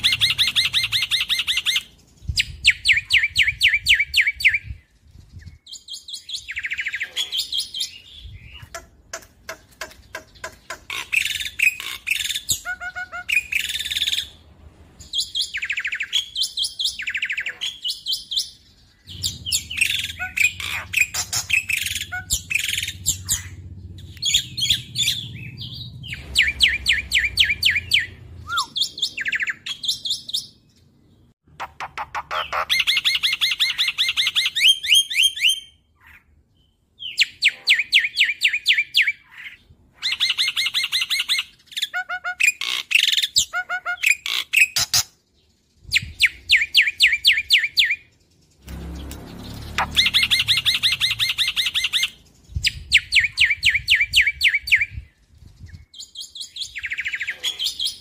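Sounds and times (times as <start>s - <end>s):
starling singing rattling notes: 48.0s - 52.9s.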